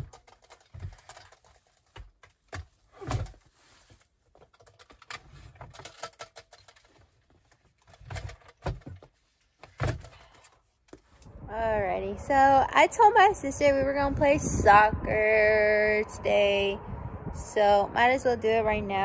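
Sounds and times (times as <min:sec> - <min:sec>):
clothes rustling: 0:00.0 - 0:11.3.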